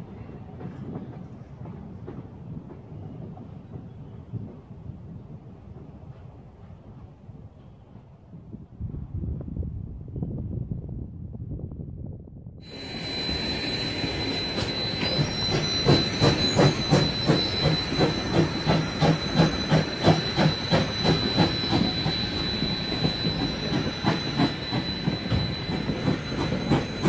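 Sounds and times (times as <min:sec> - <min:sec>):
steady high whine: 0:12.6 - 0:27.0
steam locomotive chuffing: 0:12.6 - 0:27.0
wheels squealing: 0:12.7 - 0:27.0.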